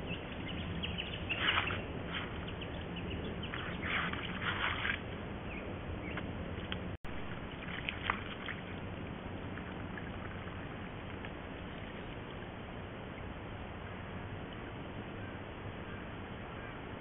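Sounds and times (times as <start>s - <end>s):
splashes in mud: 3.5s - 5.0s, 7.3s - 8.7s.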